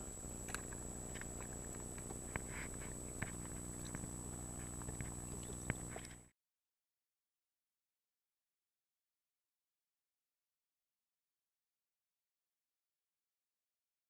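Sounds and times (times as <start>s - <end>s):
faint clicks and ticks: 0.0s - 6.3s
high whine: 0.0s - 6.3s
low underwater hum: 0.0s - 6.3s.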